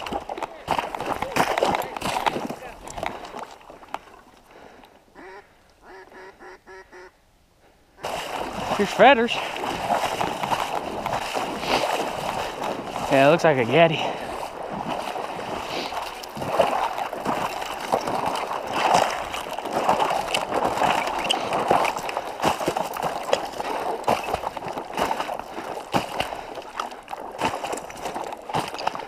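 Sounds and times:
water sloshing from wading: 8.0s - 29.0s.

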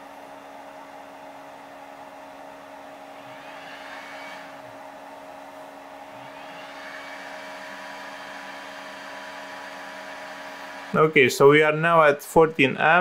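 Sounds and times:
charger cooling fan running: 0.0s - 13.0s
faint rising whines: 6.0s - 12.9s.

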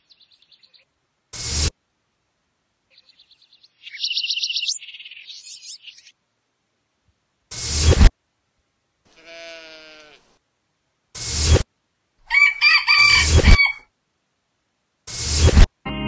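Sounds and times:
short rising bursts of noise: 1.3s - 1.8s, 7.5s - 8.1s, 11.1s - 11.7s, 15.1s - 15.8s
rooster crowing: 12.3s - 13.9s.

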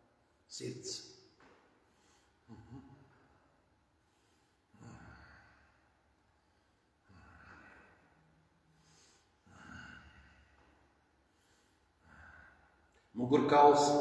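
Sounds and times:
man breathing softly: 3.2s - 13.1s.

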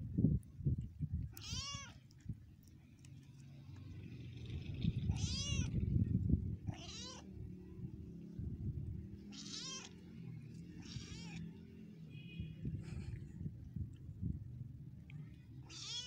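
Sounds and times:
cats meowing: 1.3s - 2.0s, 5.0s - 5.9s, 6.7s - 7.4s, 9.2s - 10.1s, 10.7s - 11.6s, 15.6s - 16.0s.

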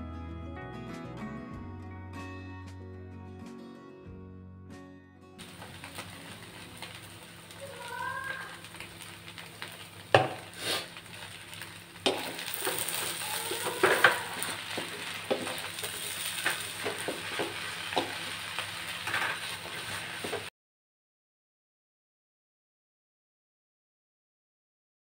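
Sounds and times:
rice sizzling in a wok: 5.4s - 20.5s
wooden spatula scraping a pan: 10.3s - 11.0s, 12.1s - 20.5s.

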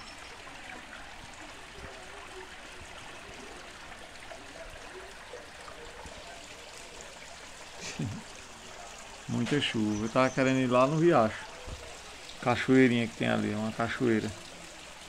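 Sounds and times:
rainwater streaming over dirt: 0.0s - 15.0s
steady rain: 0.0s - 15.0s.

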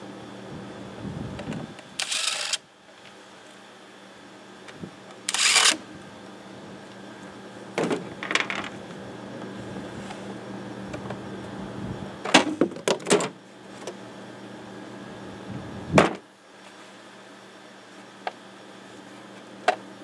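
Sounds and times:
cordless driver bursts: 2.0s - 2.6s, 5.3s - 5.8s.

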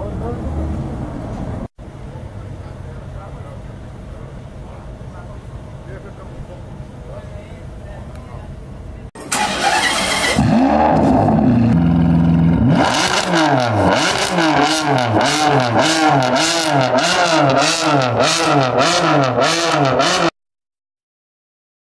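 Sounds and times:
sports car engine revving: 9.3s - 20.3s.

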